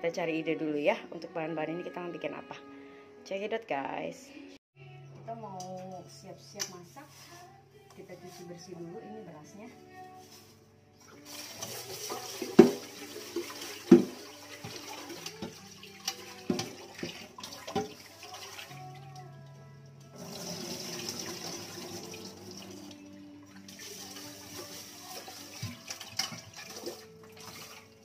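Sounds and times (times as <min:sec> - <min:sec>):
background music: 0:00.0 - 0:28.0
hands washing rice: 0:10.2 - 0:19.2, 0:20.2 - 0:28.0
tap water running into pot: 0:11.1 - 0:19.3, 0:20.2 - 0:28.0
pot knocking: 0:12.1 - 0:15.6, 0:16.4 - 0:17.9.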